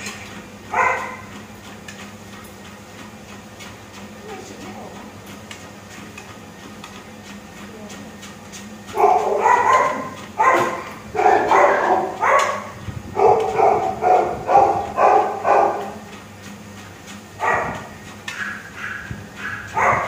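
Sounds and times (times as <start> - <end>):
treadmill motor hum: 0.0 - 20.0
dog barking and yowling: 0.7 - 1.3, 9.0 - 15.9, 17.4 - 17.8, 18.4 - 20.0.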